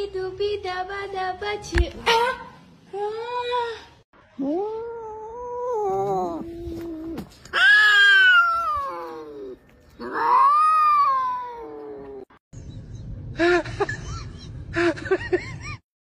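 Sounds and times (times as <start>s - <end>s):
cat yowling: 4.6s - 12.2s.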